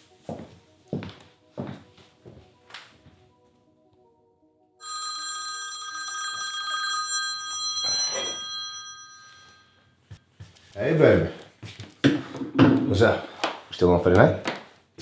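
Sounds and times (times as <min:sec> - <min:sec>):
smartphone ringtone: 0:04.8 - 0:10.0.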